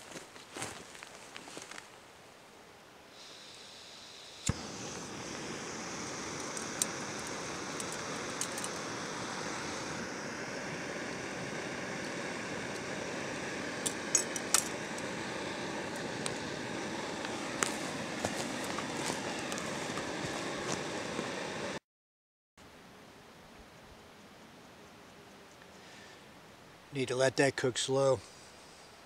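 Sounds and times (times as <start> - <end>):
stove burner hissing: 3.2 - 21.8
stove ignition click: 4.4 - 10.0, 11.6 - 21.4.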